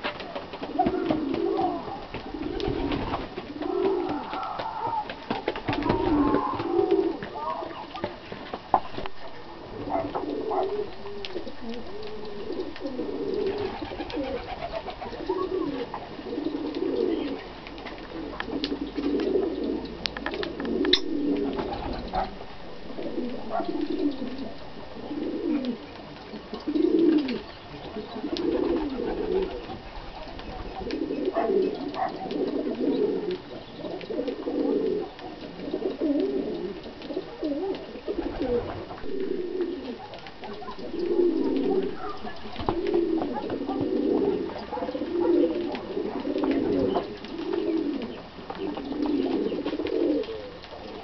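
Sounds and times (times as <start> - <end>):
dove cooing: 0.0 - 8.2, 8.8 - 51.0
birds cracking seed: 9.9 - 22.4, 25.2 - 51.0.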